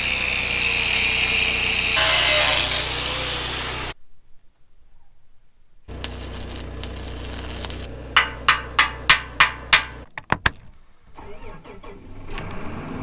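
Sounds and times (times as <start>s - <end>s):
welding machine hum: 5.9s - 10.0s
arc welder crackling: 5.9s - 10.1s
metal-on-metal strikes: 8.2s - 10.1s.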